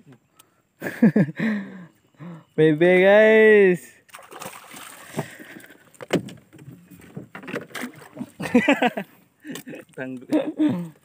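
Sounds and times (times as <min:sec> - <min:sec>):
water splashing beside boat: 0:04.1 - 0:11.0
knocks against boat: 0:06.0 - 0:07.9.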